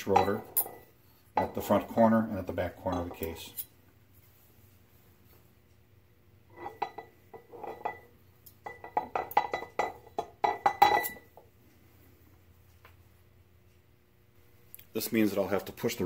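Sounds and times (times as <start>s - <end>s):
metal gauge blades clinking on metal: 0.0s - 2.2s, 2.8s - 3.8s.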